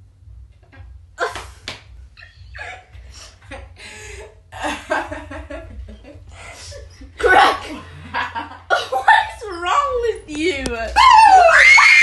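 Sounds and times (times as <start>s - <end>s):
low hum: 0.0s - 12.0s
woman laughing and yelling: 6.6s - 7.8s, 8.7s - 12.0s.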